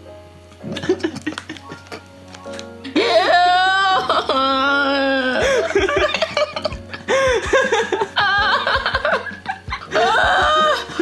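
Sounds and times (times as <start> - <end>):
background music with beat: 5.4 - 11.0.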